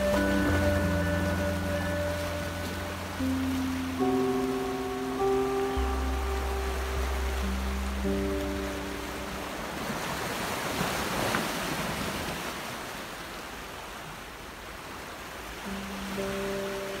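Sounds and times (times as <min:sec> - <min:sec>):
background music: 0:00.0 - 0:09.8, 0:15.7 - 0:17.0
waves washing against rocky shore: 0:07.6 - 0:14.0.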